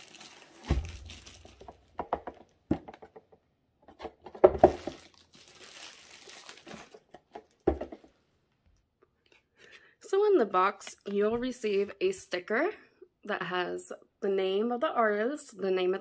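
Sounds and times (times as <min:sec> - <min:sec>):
plastic and cardboard crinkling: 0:00.0 - 0:03.0, 0:03.9 - 0:08.1
objects knocking on table: 0:07.6 - 0:08.1.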